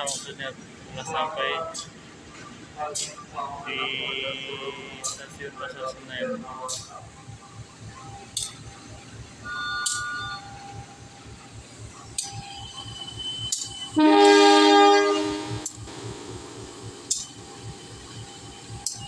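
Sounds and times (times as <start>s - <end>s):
train rumbling: 0.0s - 19.0s
train wheel clicks: 9.8s - 10.2s, 12.1s - 14.0s, 15.5s - 19.0s
locomotive air horn blast: 14.0s - 16.3s.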